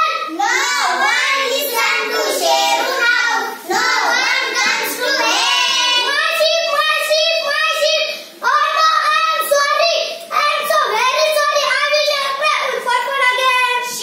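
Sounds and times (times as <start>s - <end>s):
girls singing in chorus: 0.4s - 5.8s.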